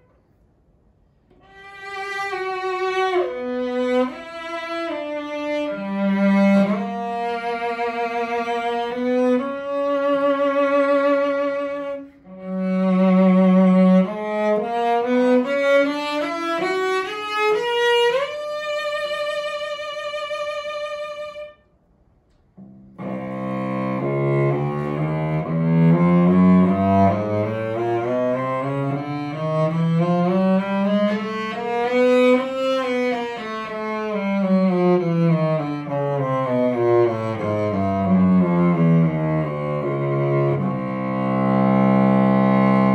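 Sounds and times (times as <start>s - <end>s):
bowed cello with vibrato: 1.3s - 21.6s, 22.6s - 42.9s.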